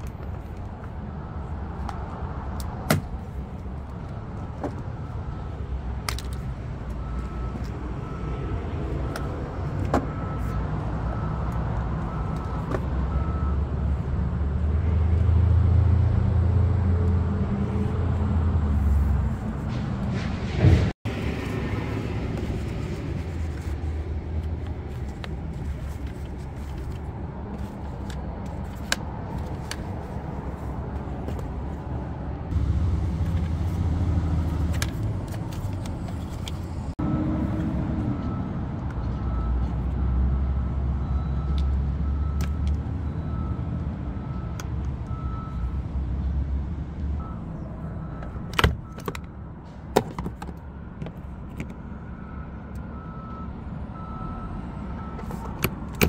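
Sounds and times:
vehicle engine rumbling: 0.0 - 56.0.

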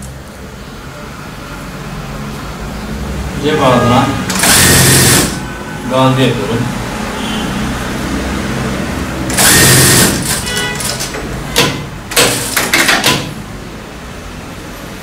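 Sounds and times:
sewing machine stitching: 4.3 - 5.4, 9.3 - 13.3.

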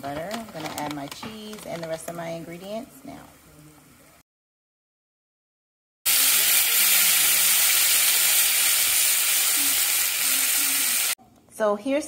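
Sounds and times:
taco sizzling in a skillet: 6.1 - 11.2.

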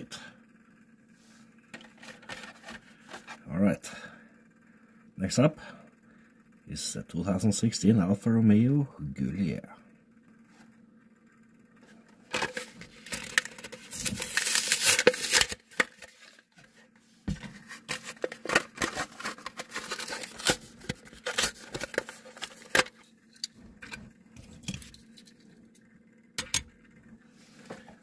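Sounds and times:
plastic packaging crinkling and tearing: 12.4 - 16.6, 17.6 - 23.0.

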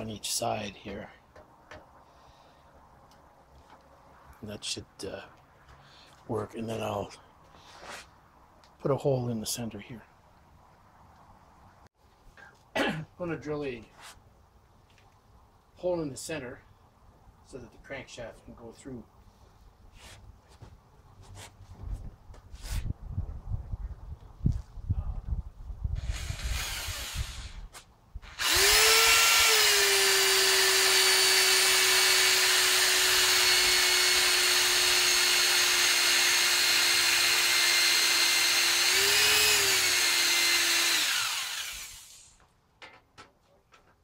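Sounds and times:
electric drill boring through metal: 26.0 - 42.4.

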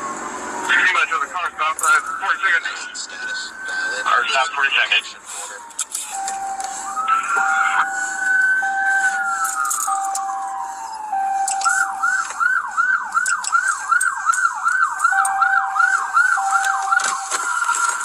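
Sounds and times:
police siren wailing and yelping: 0.0 - 18.0
lower steady tone: 6.1 - 12.3.

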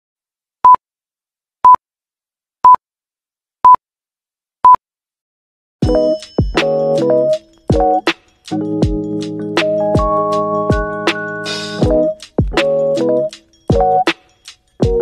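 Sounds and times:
keyboard music: 5.8 - 15.0.

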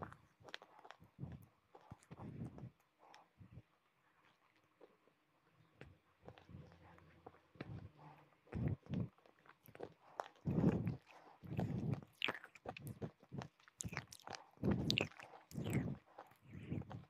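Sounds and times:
wet mouth clicks: 8.5 - 17.0
person crunching hard food: 8.7 - 17.0.

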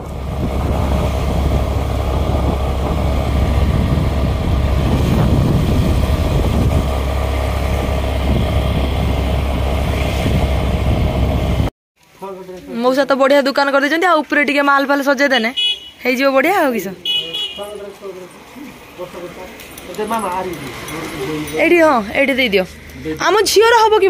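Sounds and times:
vehicle running: 0.0 - 11.7, 17.8 - 24.0
wind rumble on microphone: 0.0 - 11.7.

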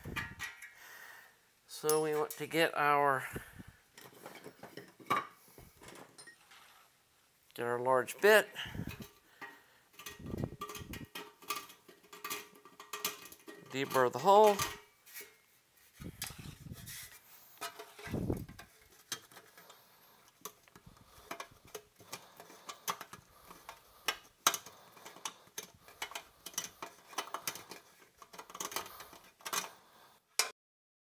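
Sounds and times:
metallic scraping clicks: 17.5 - 29.8.

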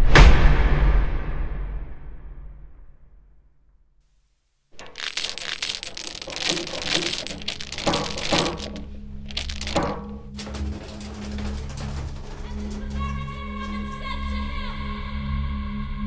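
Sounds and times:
metal chain rattling: 4.8 - 13.1.

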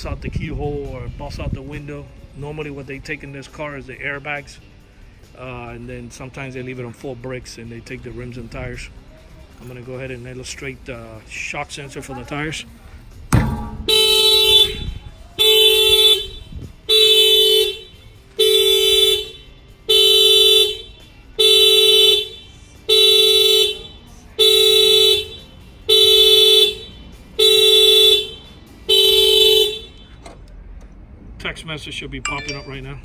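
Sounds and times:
car horn honking: 13.4 - 30.3.

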